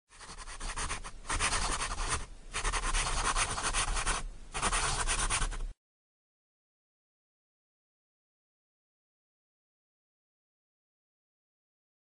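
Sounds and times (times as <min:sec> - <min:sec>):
pen scratching on paper: 0:00.1 - 0:05.6.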